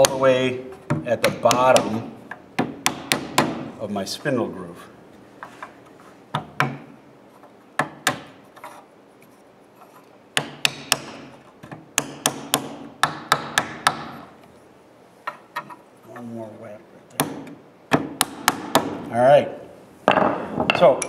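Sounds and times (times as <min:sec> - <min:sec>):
wooden mallet tapping wood: 0:00.9 - 0:03.6, 0:06.3 - 0:06.9, 0:10.4 - 0:14.2.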